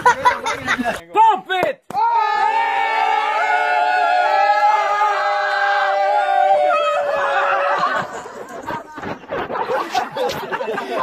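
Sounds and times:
people yelling: 1.9 - 8.7.

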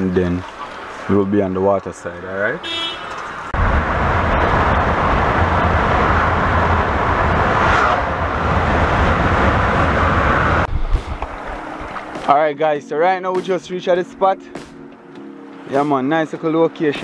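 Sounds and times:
car road and wind noise: 0.0 - 12.3
lorry passing: 3.5 - 12.2.

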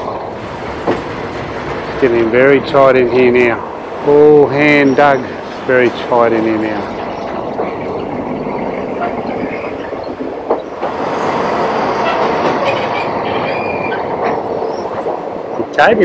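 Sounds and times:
train wheels rattling on rails: 0.0 - 16.0
faint high wheel squeal: 4.3 - 7.4, 8.0 - 15.0.

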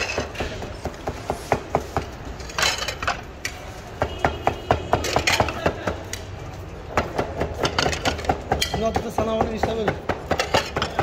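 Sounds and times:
ceramic plates clinking on steel: 7.6 - 9.2.

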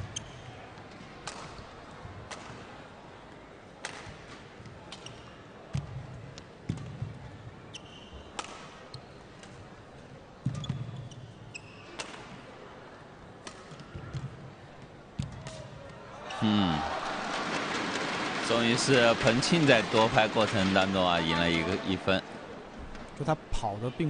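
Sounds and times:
shoes squeaking on court: 0.0 - 0.6, 7.7 - 9.4, 10.4 - 12.3.

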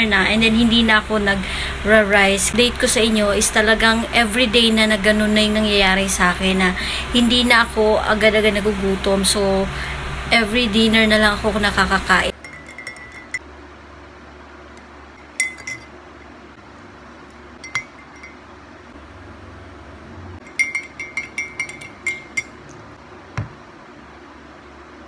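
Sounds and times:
spoon clinking against glass mug: 12.3 - 13.4, 15.2 - 16.0, 17.6 - 18.4, 20.4 - 22.7.

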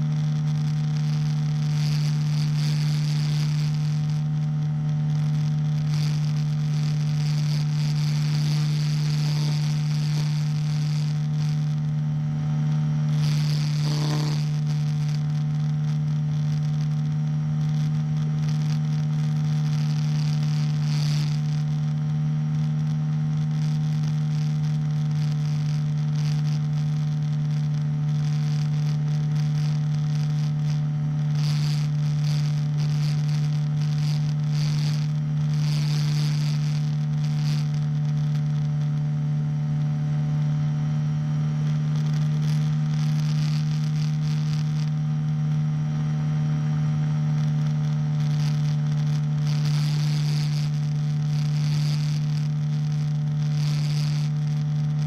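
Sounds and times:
engine droning in flight: 0.0 - 33.9, 37.4 - 55.0.

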